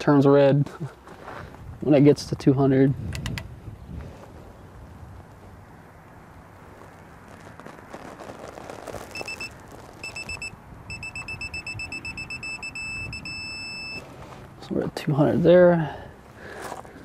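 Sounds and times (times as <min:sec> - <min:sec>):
torque wrench beeping: 0:09.2 - 0:14.0.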